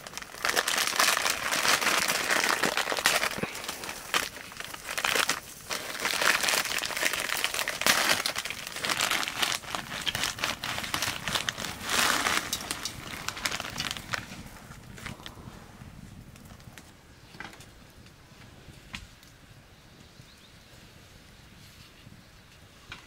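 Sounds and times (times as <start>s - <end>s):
plastic packet crinkling: 0.0s - 14.3s.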